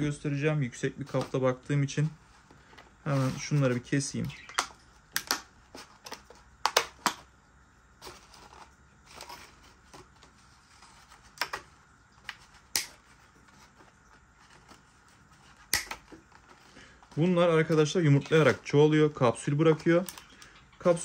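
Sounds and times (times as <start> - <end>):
packaging rustling: 1.0 - 6.5, 8.0 - 21.0.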